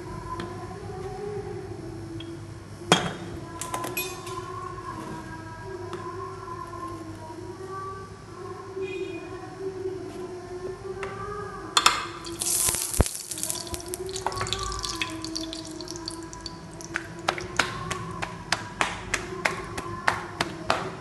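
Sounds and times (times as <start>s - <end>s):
hiss and clatter: 12.2s - 18.3s
hands slapping dough: 12.3s - 21.0s.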